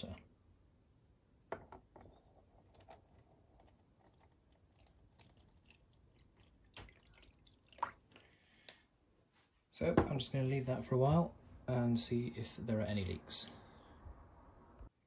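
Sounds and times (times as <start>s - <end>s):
water trickling into plastic box: 2.0s - 8.5s.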